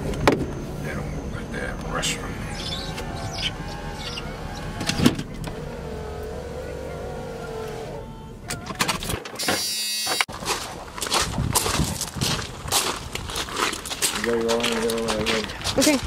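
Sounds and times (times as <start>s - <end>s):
vehicle engine running low: 0.0s - 8.5s
power window motor whining: 2.5s - 8.2s.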